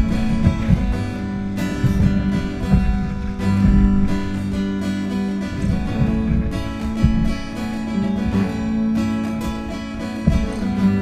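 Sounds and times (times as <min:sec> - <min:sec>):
strummed acoustic guitar: 0:00.0 - 0:11.0.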